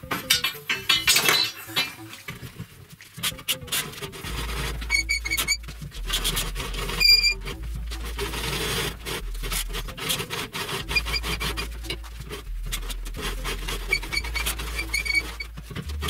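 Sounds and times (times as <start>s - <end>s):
metal scraping through rollers: 0.0s - 16.0s
steel rod clinking on metal: 0.1s - 2.1s
metal on metal squeals: 3.2s - 16.0s.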